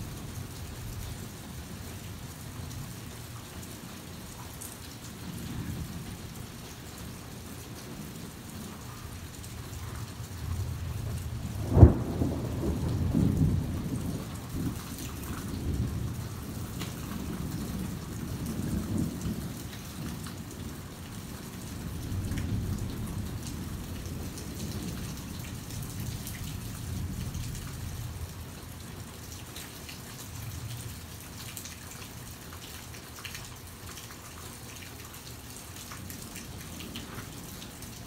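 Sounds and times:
rain falling: 0.0 - 38.0
thunder rumbling: 10.3 - 19.8, 21.6 - 28.3.

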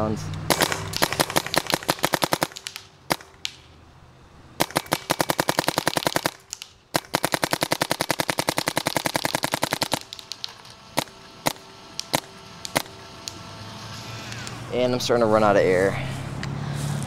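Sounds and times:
paintball marker firing: 0.5 - 3.7, 4.6 - 13.4.

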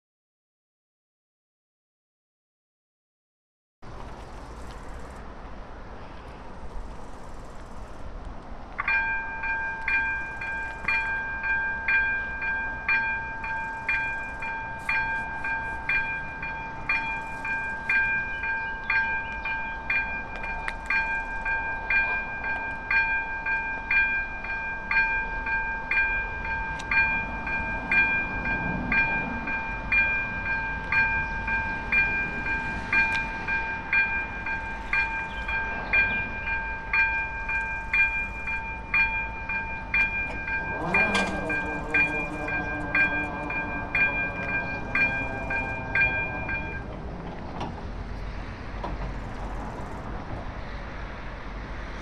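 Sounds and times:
level crossing warning bell: 8.8 - 47.4.

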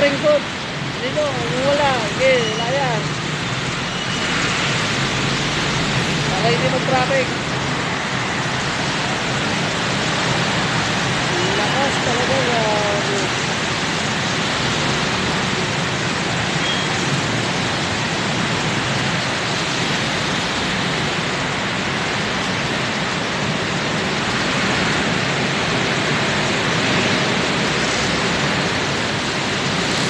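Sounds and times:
heavy rain: 0.0 - 30.0
traffic on wet road: 0.0 - 30.0.

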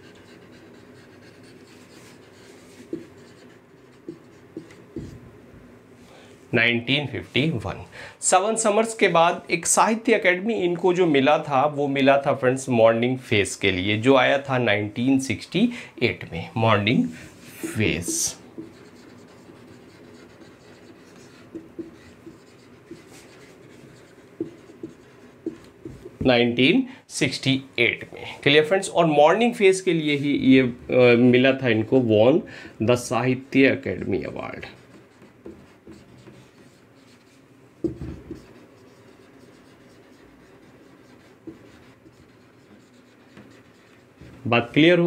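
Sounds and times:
marker rubbing on whiteboard: 0.0 - 5.2, 15.3 - 26.3, 32.9 - 45.0.

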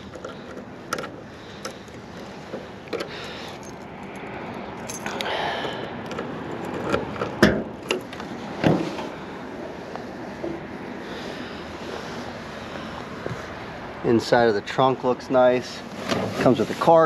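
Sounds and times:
car keys jangling: 0.0 - 5.4.

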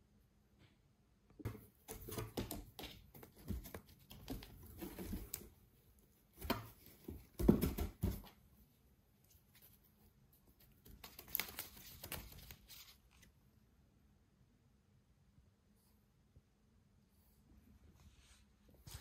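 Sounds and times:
cat scratching cardboard: 1.4 - 8.4.

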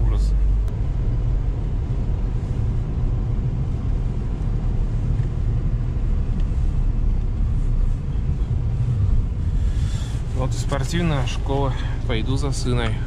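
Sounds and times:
car engine low rumble: 0.0 - 13.0.

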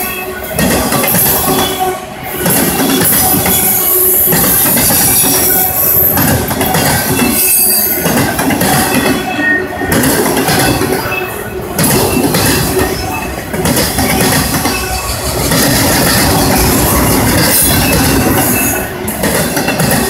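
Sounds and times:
train wheels rumbling on rails: 0.0 - 20.0
high-pitched wheel squeals: 1.1 - 19.1.

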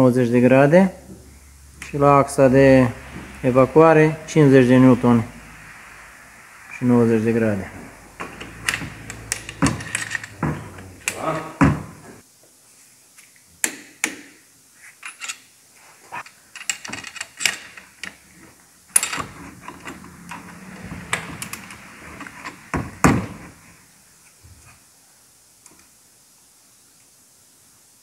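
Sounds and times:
low rubbing sound: 0.5 - 12.2, 19.3 - 24.3
metal clank: 8.2 - 11.2.

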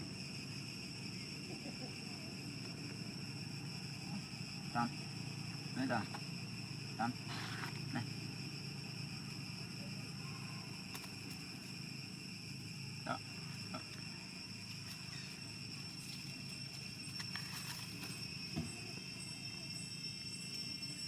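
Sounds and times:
insect drone: 0.0 - 21.0.

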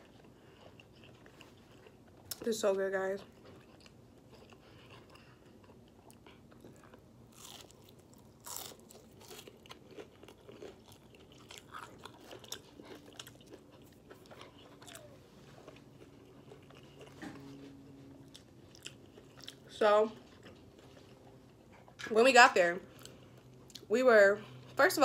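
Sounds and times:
person chewing crispy food: 0.0 - 2.5, 3.1 - 22.1, 22.8 - 23.9.

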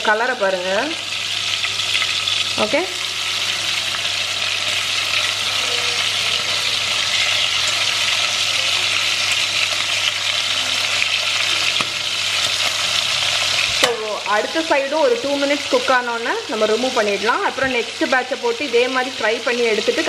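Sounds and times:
chicken sizzling in hot oil: 0.0 - 20.0.

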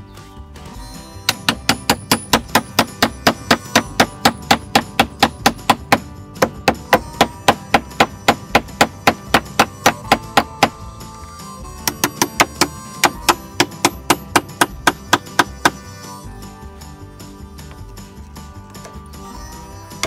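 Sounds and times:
background music: 0.0 - 20.0
rapid hammering on wood wedges: 1.2 - 15.9.

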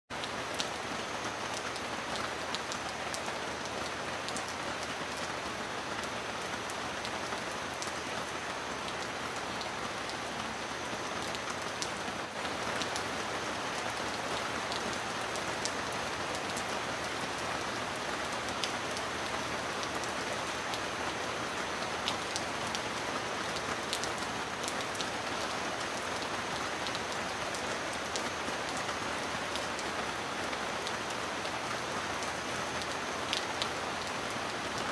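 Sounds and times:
steady rain falling: 0.1 - 34.9
raindrop ticks: 32.2 - 34.4.

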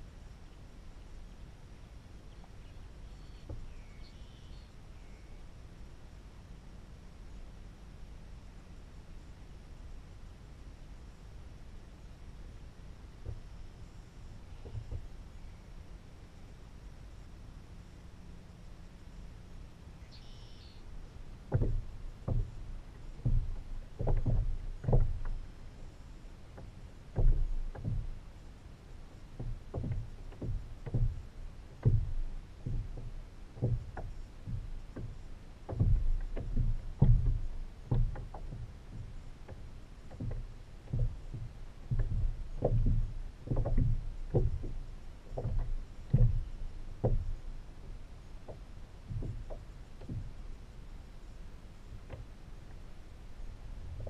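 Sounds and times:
knocks against a kayak hull: 14.6 - 15.1, 21.4 - 25.4, 26.5 - 28.2, 29.4 - 50.4, 51.9 - 52.8.

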